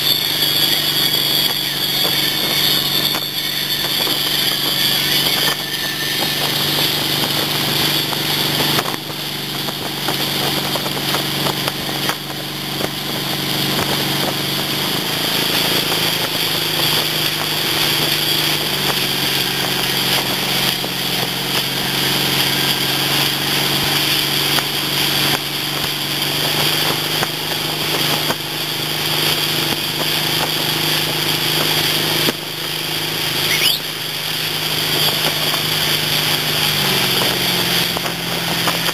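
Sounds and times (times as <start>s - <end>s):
boat engine running: 0.0s - 38.9s
wake water rushing: 0.0s - 38.9s
wind: 0.0s - 38.9s.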